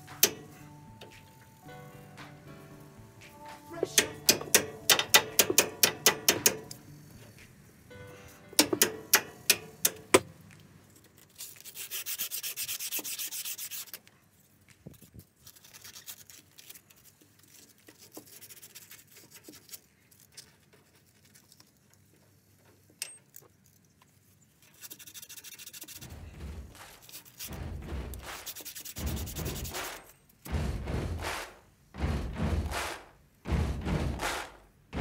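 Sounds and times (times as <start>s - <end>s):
rubbing strokes on metal stud: 3.9s - 6.8s, 11.4s - 14.1s, 24.6s - 33.0s.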